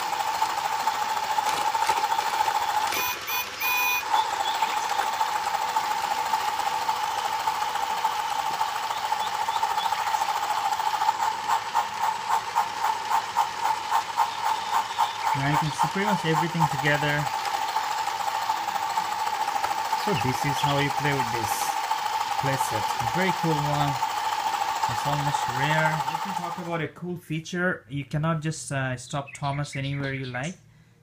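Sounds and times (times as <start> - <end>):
toy train motor whirring: 0.0 - 26.8
regular clatter: 0.5 - 3.2, 10.0 - 26.6
short electronic beeps: 2.9 - 4.2.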